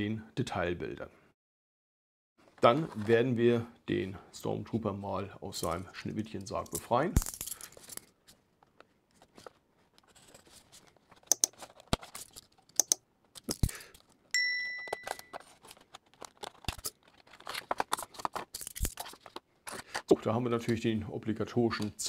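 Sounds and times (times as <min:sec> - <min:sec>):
ringing clink: 0:14.4 - 0:15.3
plastic packaging crackling and tearing: 0:15.3 - 0:20.0.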